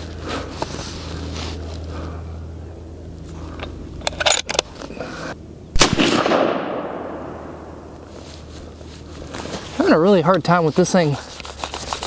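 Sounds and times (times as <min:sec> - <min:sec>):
suppressed rifle shot: 0:05.7 - 0:07.8.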